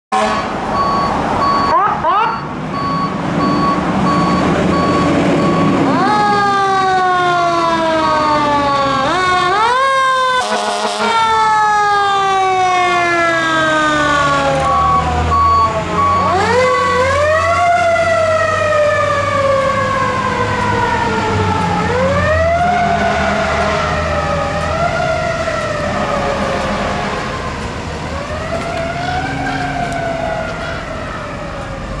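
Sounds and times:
reversing beeper: 0.2 - 6.0, 14.2 - 16.7
electronic sirens wailing: 0.2 - 32.0.

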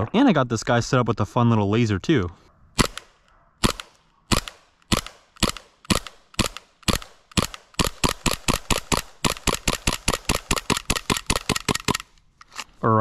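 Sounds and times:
airsoft pistol shots: 2.8 - 12.1.

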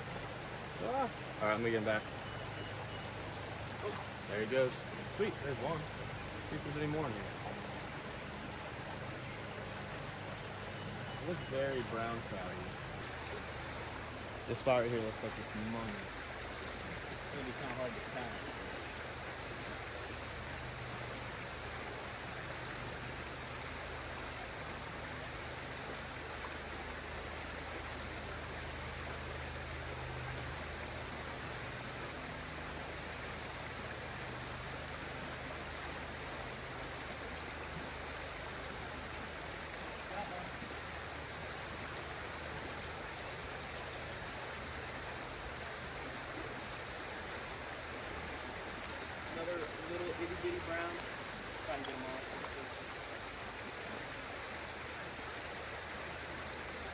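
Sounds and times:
stream water hissing: 0.0 - 56.9.

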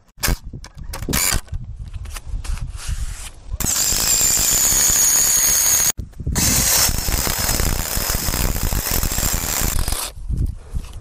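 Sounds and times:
cordless drill driving screw into wood: 3.6 - 10.1.

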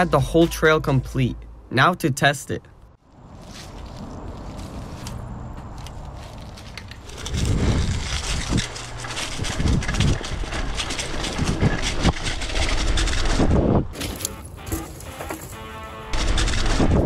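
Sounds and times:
tyres rolling on dirt and leaves: 3.1 - 16.6
bike rattling: 3.4 - 17.0
wind rushing over microphone: 6.9 - 14.0.

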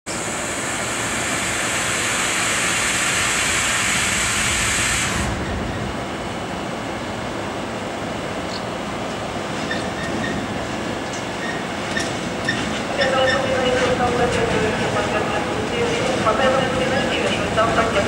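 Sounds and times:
freight train rumbling: 0.1 - 18.0
loud hiss: 0.2 - 5.4.

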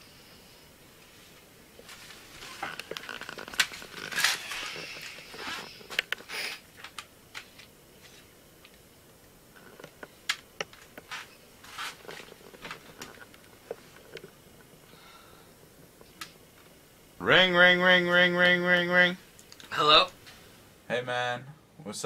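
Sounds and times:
rustling of clothing: 1.0 - 8.3, 10.7 - 14.4.

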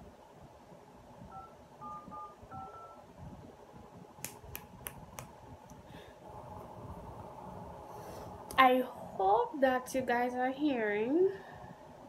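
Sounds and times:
keypad touch tone beeps: 1.3 - 3.1.

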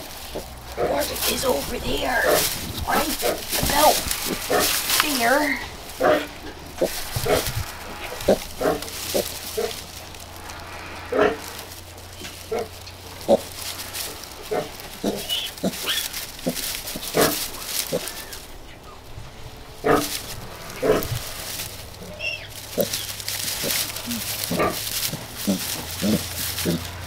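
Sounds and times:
piglets grunting: 0.0 - 27.0
straw rustling: 0.0 - 27.0.

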